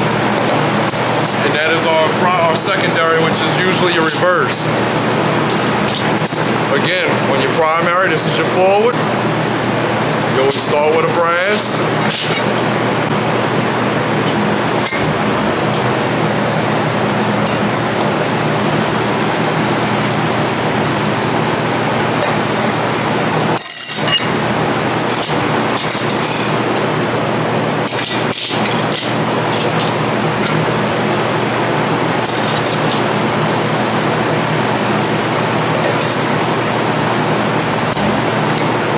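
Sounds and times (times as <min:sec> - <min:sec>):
metal plates clinking: 0:23.6 - 0:24.4, 0:25.1 - 0:26.9, 0:32.2 - 0:33.1.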